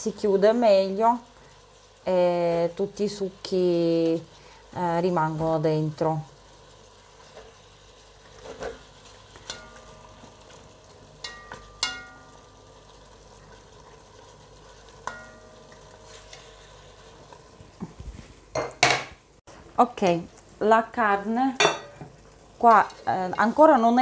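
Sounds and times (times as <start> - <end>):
meat sizzling in butter: 0.0 - 18.5
spatula knocking on metal pot: 11.2 - 12.3, 15.0 - 15.5.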